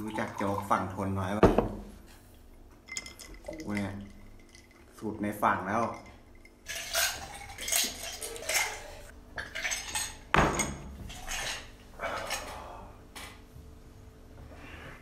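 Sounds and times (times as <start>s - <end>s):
glasses and dishes clinking: 2.8s - 4.9s, 5.8s - 12.5s.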